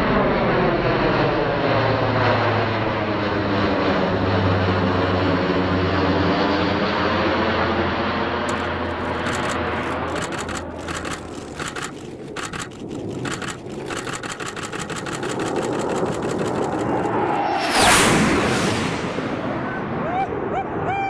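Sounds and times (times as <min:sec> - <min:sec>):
propeller aircraft engine passing: 0:00.0 - 0:20.8
rapid crackling flutter: 0:08.5 - 0:18.6.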